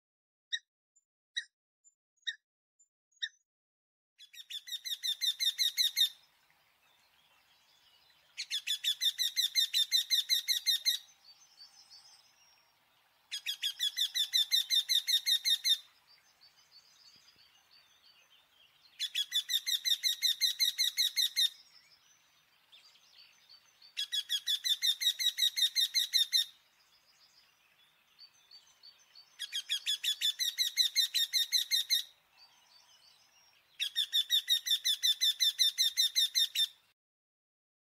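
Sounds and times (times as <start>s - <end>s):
woodpecker calling: 4.2s - 6.2s, 8.4s - 11.1s, 13.3s - 15.9s, 19.0s - 21.6s, 23.9s - 26.5s, 29.2s - 32.2s, 33.8s - 36.8s.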